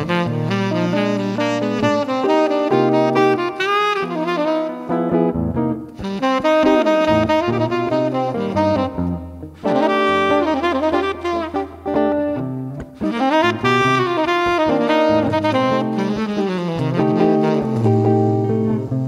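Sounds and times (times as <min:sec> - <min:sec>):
electric guitar chords: 0:00.0 - 0:19.0
saxophone melody: 0:00.0 - 0:19.0.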